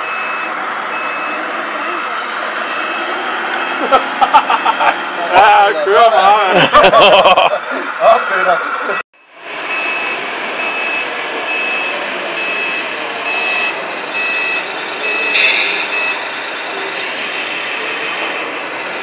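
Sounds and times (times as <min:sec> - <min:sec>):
reversing beeper: 0:00.0 - 0:04.8, 0:08.8 - 0:19.0.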